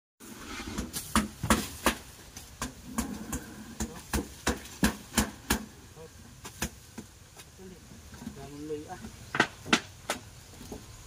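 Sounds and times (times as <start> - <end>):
digging bar striking ground: 0.4 - 5.7.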